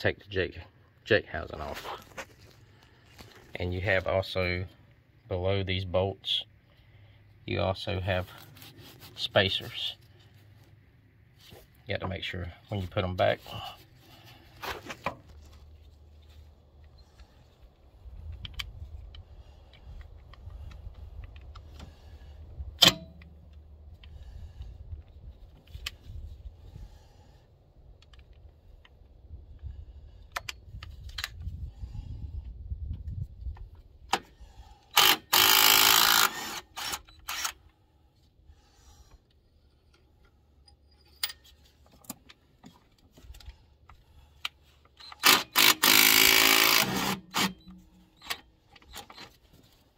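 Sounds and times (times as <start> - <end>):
impact wrench hammering: 45.2 - 47.7.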